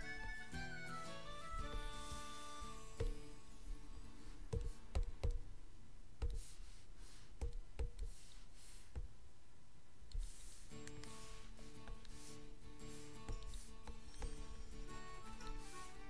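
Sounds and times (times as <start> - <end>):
faint background music: 0.0 - 5.4, 12.8 - 16.0.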